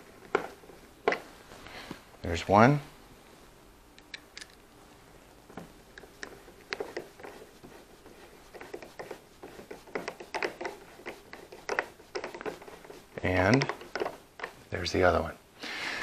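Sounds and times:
screwdriver turning screw: 6.0 - 14.5.

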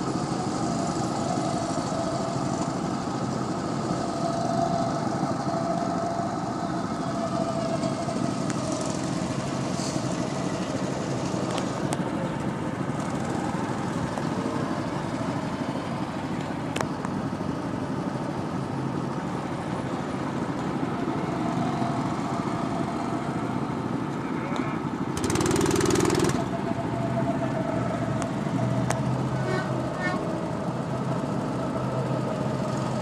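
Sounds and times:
go-kart engines droning: 0.0 - 33.0.

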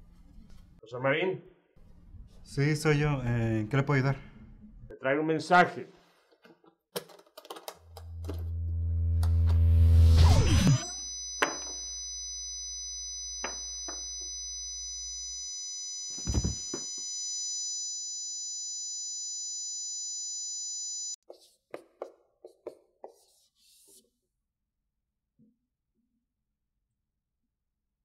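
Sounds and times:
low hum: 7.9 - 15.6
high steady drone tones: 8.0 - 17.0
marker writing on whiteboard: 21.2 - 24.1.

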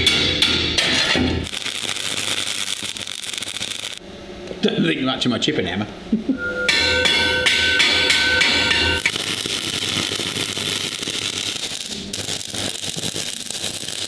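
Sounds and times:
arc welder crackling: 0.8 - 4.0, 8.0 - 14.0
hammer ringing on metal pipe: 6.4 - 9.1.

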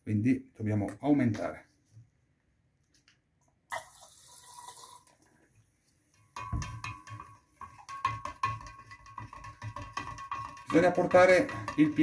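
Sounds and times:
spoon stirring in glass jar: 6.1 - 12.0.

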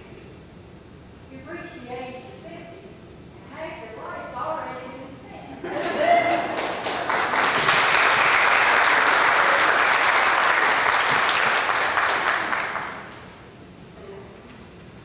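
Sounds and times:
congregation applauding: 5.8 - 13.4.

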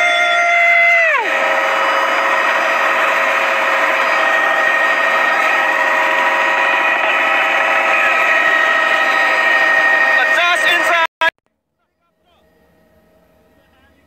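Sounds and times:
constant rushing noise: 0.0 - 11.1
helicopter cabin whine: 0.0 - 14.0.

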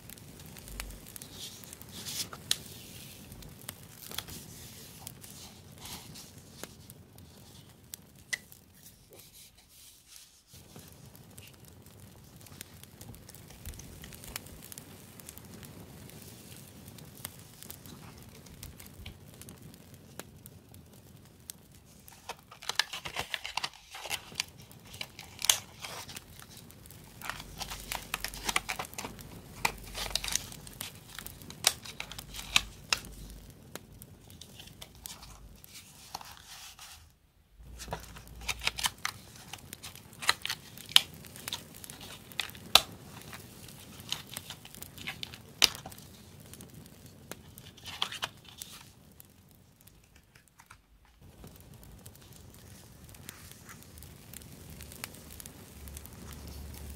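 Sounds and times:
paper clicks and crackles: 0.0 - 9.9, 21.8 - 37.0, 37.6 - 46.7, 47.3 - 49.0, 49.8 - 56.9
paper rustling: 1.2 - 3.2, 4.0 - 6.8, 22.0 - 26.6, 27.2 - 33.3, 34.3 - 46.2, 47.5 - 48.9, 50.0 - 51.3.

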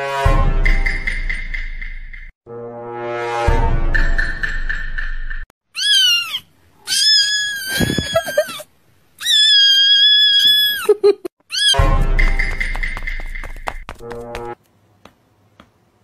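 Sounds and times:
kitten screaming meows: 5.7 - 10.9, 11.5 - 11.9.

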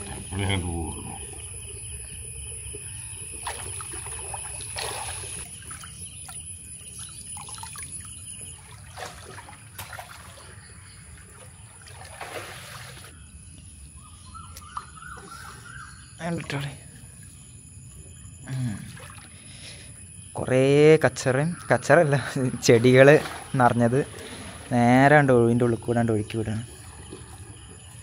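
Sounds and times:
water splashing: 0.0 - 13.2, 18.6 - 19.6, 22.4 - 28.0.

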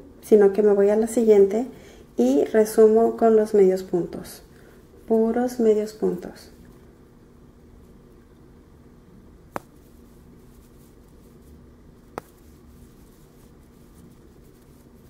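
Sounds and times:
steady low hum: 0.0 - 15.0
crochet hook working yarn: 9.6 - 15.0.

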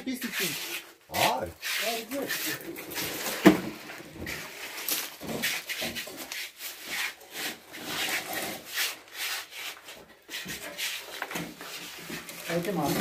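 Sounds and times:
hand tool rasping scraping: 0.0 - 3.5, 4.2 - 13.0.

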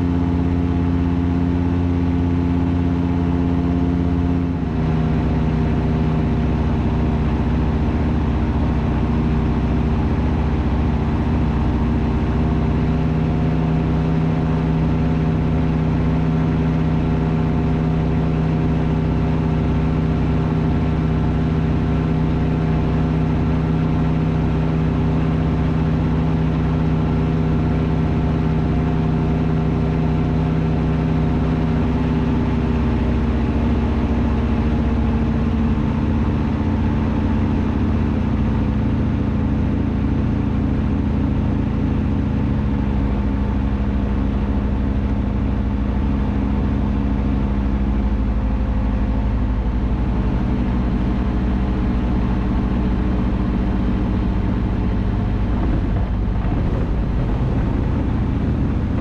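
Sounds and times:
aircraft engine and propeller droning: 47.0 - 59.0.

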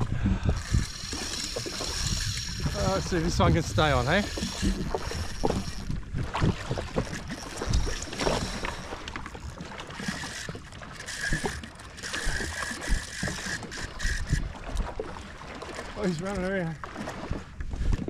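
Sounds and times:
water slapping against hull: 0.0 - 18.0
fishing reel drag whining: 0.4 - 14.9.

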